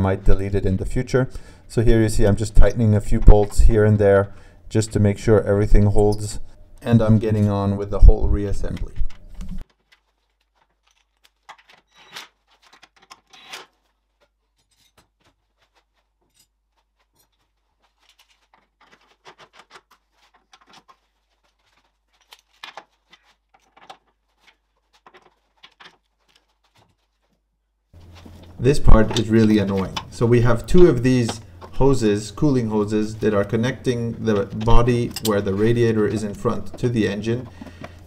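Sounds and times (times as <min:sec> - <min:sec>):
clothing rustling: 0:09.0 - 0:38.0
hand tools clicking and tapping: 0:33.2 - 0:38.0.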